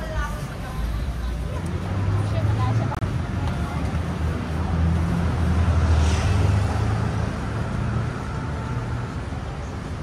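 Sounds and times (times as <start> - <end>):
street noise: 0.0 - 10.0.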